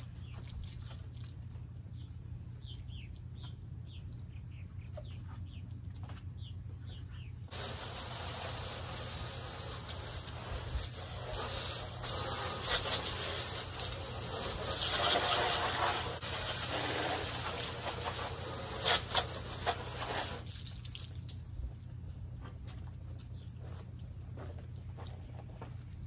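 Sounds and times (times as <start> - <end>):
hose spraying water on glass: 7.5 - 21.0.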